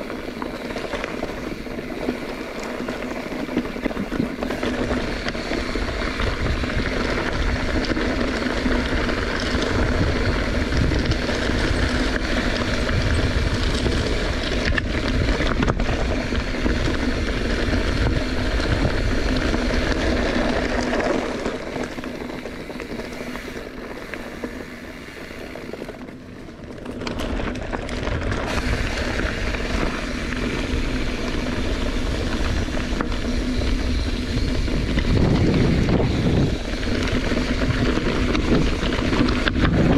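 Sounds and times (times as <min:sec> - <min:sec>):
bicycle tyre and frame noise: 0:00.0 - 0:39.9
wind rushing over microphone: 0:03.8 - 0:20.8, 0:28.0 - 0:39.9.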